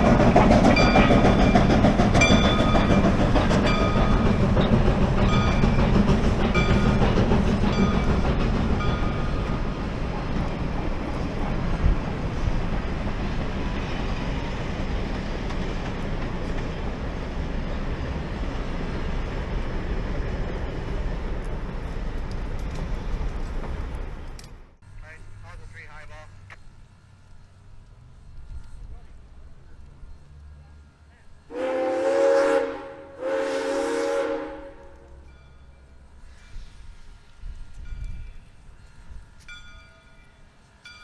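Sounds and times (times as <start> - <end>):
train wheels clattering on rails: 0.0 - 24.6
steam train rumble: 0.0 - 41.0.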